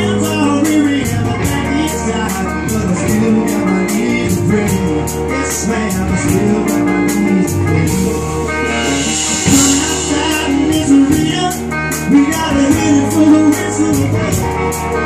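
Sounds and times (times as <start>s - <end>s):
drums: 0.0s - 15.0s
resonator guitar: 0.0s - 15.0s
cymbals struck: 8.5s - 11.7s.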